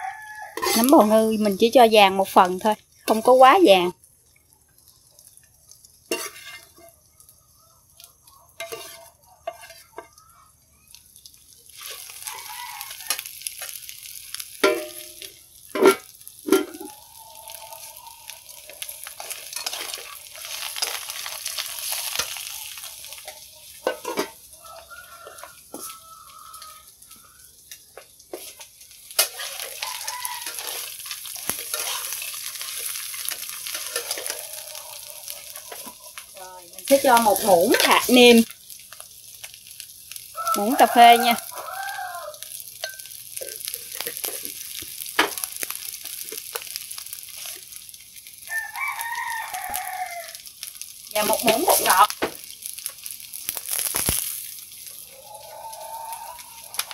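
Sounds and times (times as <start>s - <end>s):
food sizzling in a wok: 0.0s - 56.9s.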